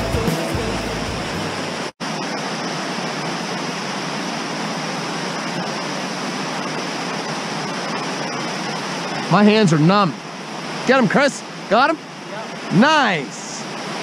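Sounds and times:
low background music: 0:00.0 - 0:01.8.

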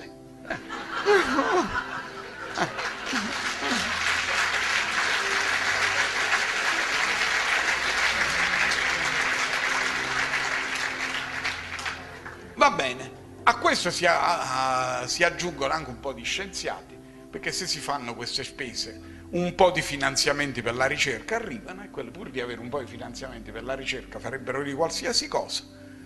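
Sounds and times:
audience laughing: 0:00.5 - 0:11.2
audience applause: 0:01.0 - 0:12.5.

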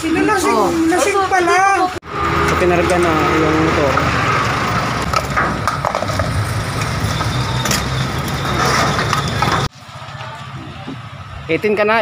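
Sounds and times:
street traffic: 0:00.0 - 0:12.0
knocks and clanks of metal: 0:05.0 - 0:09.7.

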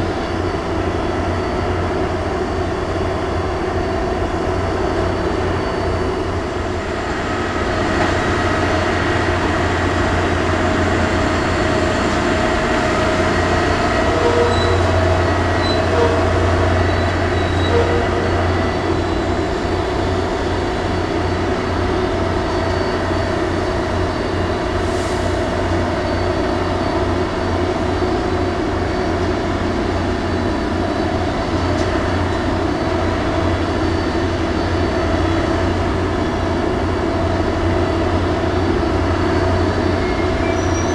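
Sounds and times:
steady humming tones: 0:00.0 - 0:24.8
crane machinery drone: 0:00.0 - 0:40.9.

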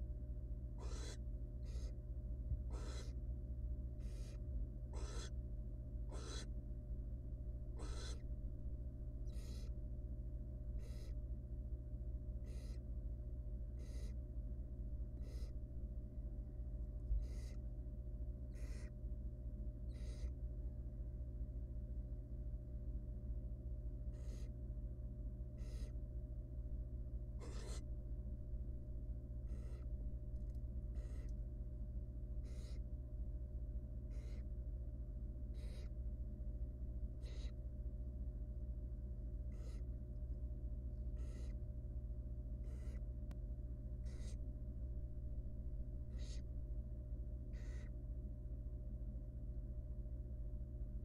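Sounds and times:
low electrical hum: 0:00.0 - 0:51.0
owl raspy hisses: 0:00.8 - 0:02.0, 0:02.7 - 0:03.2, 0:04.0 - 0:05.4, 0:06.1 - 0:06.5, 0:07.8 - 0:08.2, 0:09.3 - 0:09.7, 0:10.8 - 0:11.1, 0:12.4 - 0:12.8, 0:13.8 - 0:14.2, 0:15.2 - 0:15.5, 0:17.2 - 0:17.6, 0:18.6 - 0:18.9, 0:19.9 - 0:20.3, 0:24.1 - 0:24.5, 0:25.6 - 0:25.9, 0:27.4 - 0:27.8, 0:29.5 - 0:29.8, 0:32.4 - 0:32.8, 0:34.1 - 0:34.4, 0:35.6 - 0:35.9, 0:37.2 - 0:37.6, 0:39.5 - 0:39.8, 0:41.2 - 0:41.5, 0:42.6 - 0:43.0, 0:44.0 - 0:44.4, 0:46.1 - 0:46.4, 0:47.5 - 0:47.9.

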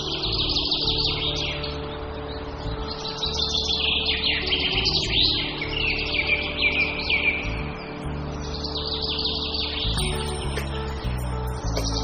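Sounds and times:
birds chirping: 0:00.0 - 0:12.0
low background music drone: 0:00.0 - 0:12.0.

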